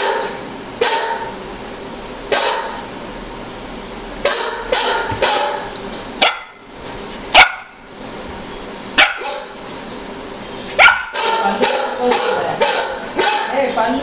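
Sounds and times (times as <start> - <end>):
puppy barking: 0.0 - 1.4, 2.3 - 2.9, 4.2 - 6.6, 7.4 - 7.8, 9.0 - 9.6, 10.8 - 13.7.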